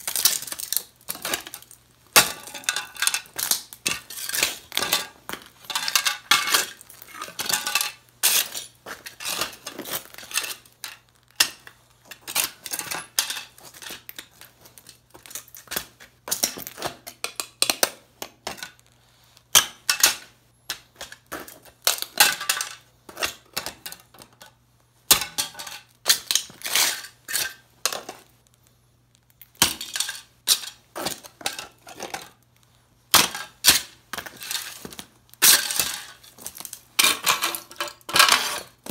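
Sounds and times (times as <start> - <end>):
small metal pieces clattering: 0.0 - 17.4
boots stamping on debris: 33.1 - 37.2.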